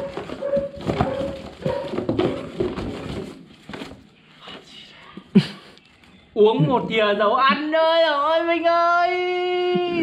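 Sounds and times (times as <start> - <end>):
cardboard rustling and scraping: 0.0 - 4.2.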